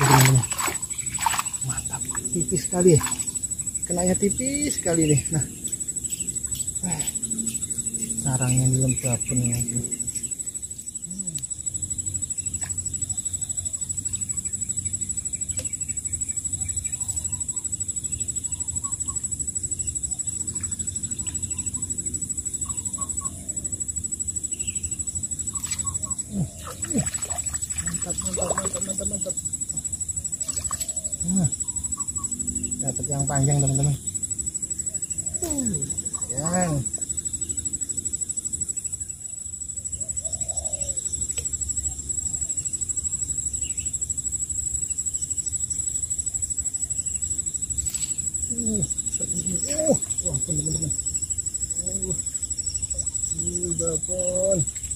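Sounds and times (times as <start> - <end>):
insects droning high-pitched: 0.0 - 54.9
faint bird coos: 11.0 - 11.6, 25.6 - 29.2, 30.4 - 32.2, 35.2 - 37.0, 40.0 - 41.0, 47.9 - 51.0, 51.7 - 54.8.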